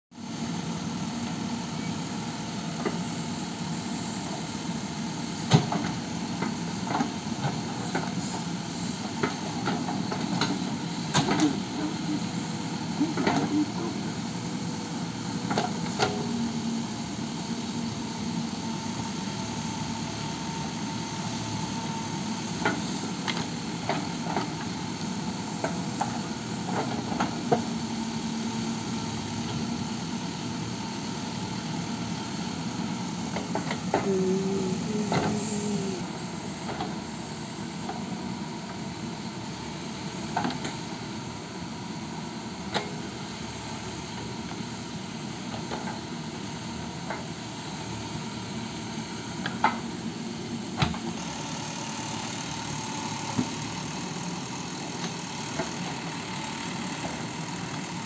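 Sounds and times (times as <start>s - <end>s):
diesel engine running: 0.2s - 38.4s.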